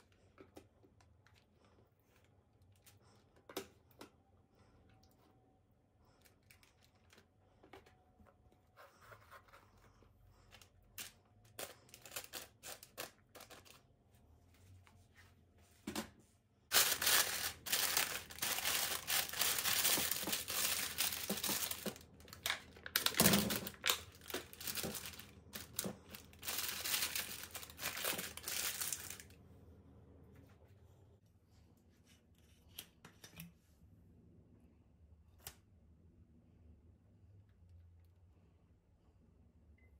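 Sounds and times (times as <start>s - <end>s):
baking paper crinkling: 10.8s - 13.8s, 16.7s - 29.4s.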